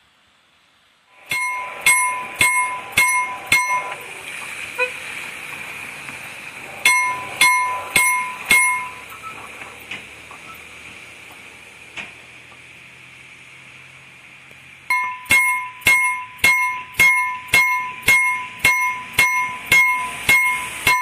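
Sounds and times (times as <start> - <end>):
level crossing bell striking gongs: 1.2 - 4.1, 6.7 - 9.1, 14.9 - 21.0.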